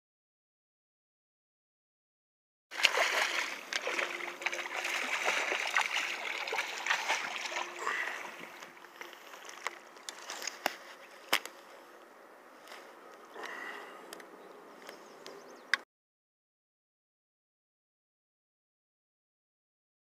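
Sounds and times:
fish thrashing and splashing: 2.7s - 11.4s.

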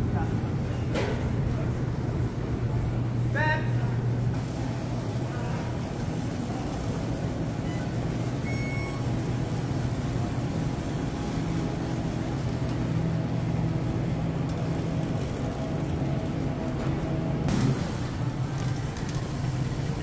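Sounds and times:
store hum: 0.0s - 20.0s
shopping cart rumbling: 4.4s - 20.0s
faint high beep: 8.4s - 9.0s.

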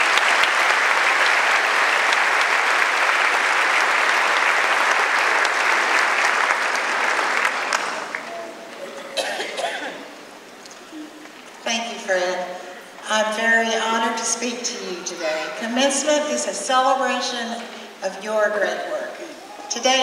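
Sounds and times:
audience applauding: 0.0s - 9.2s.

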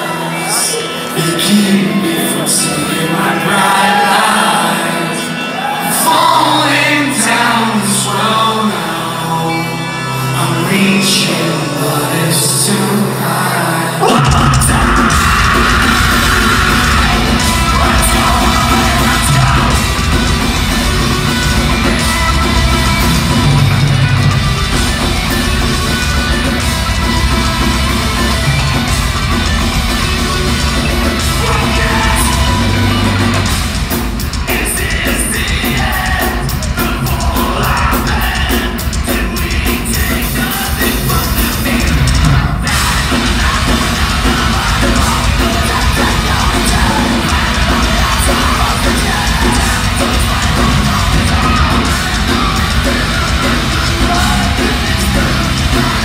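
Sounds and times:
distorted electric guitars: 0.0s - 56.0s
drums: 0.0s - 56.0s
shouted and sung vocals: 0.0s - 56.0s
bass guitar: 13.9s - 56.0s.

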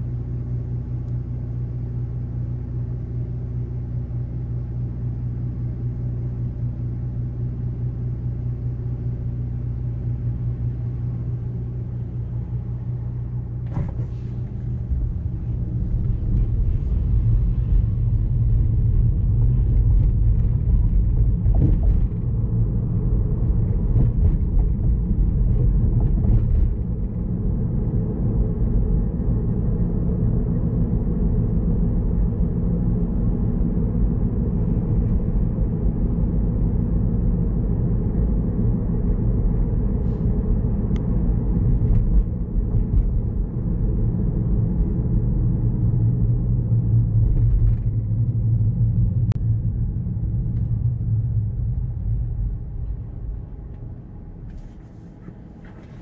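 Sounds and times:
car cabin hum: 7.7s - 56.0s
tyre and road rumble: 12.4s - 56.0s.

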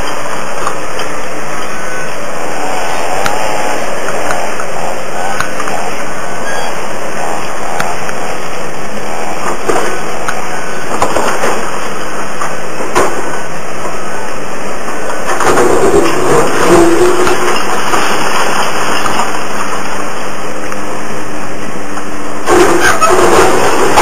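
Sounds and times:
excavator diesel engine under load: 0.0s - 24.0s
debris crashing and falling: 15.3s - 20.0s, 22.5s - 24.0s.

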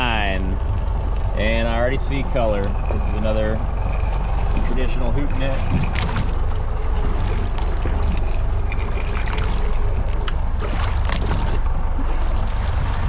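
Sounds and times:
boat engine low rumble: 0.0s - 13.0s
splashy clicks: 2.4s - 13.0s.

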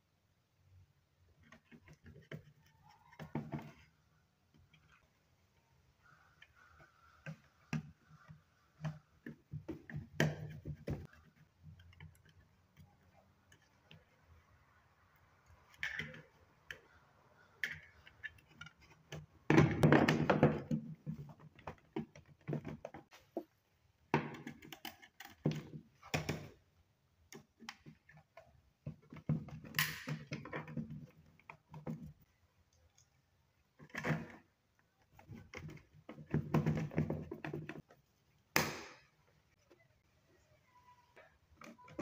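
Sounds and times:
plastic clicks knocks and scraping: 1.4s - 5.2s, 15.6s - 23.1s, 24.1s - 26.6s, 27.2s - 38.0s.

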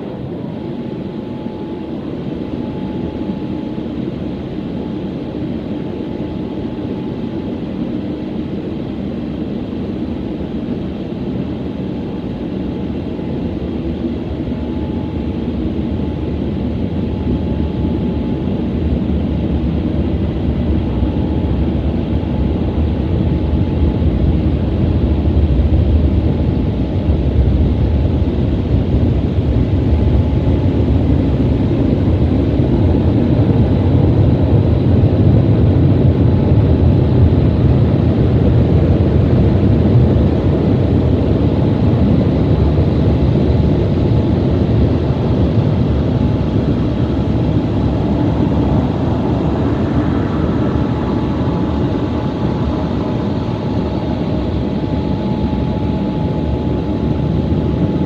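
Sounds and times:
faint steady whine: 0.0s - 58.0s.

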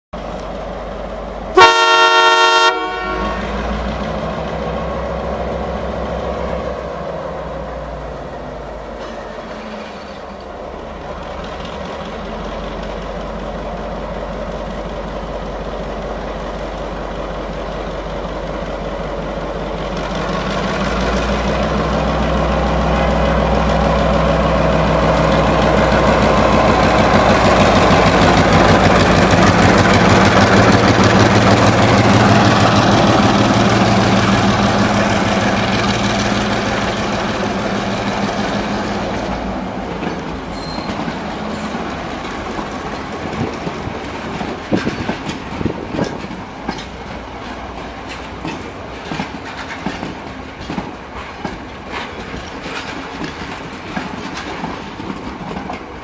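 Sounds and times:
diesel locomotive engine running: 0.2s - 56.0s
locomotive horn blast: 1.6s - 3.7s.

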